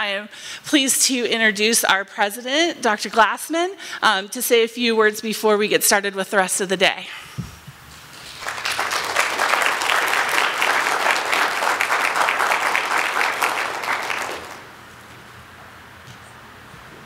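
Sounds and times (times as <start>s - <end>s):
audience applauding: 8.1s - 14.8s.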